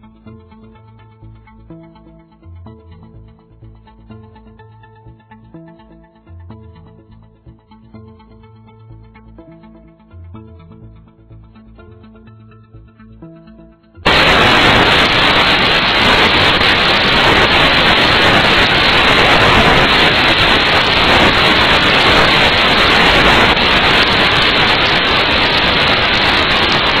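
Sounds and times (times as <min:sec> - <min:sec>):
underwater rushing hiss: 0:14.1 - 0:27.0.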